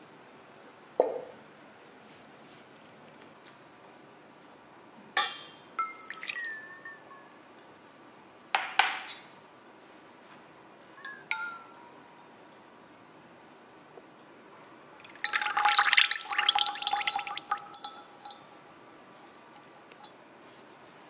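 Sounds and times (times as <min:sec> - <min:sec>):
cups clinking against steel bowl: 0:05.2 - 0:07.4, 0:11.0 - 0:11.8, 0:15.0 - 0:18.6
metal bowl ringing: 0:11.0 - 0:11.8, 0:16.5 - 0:18.6.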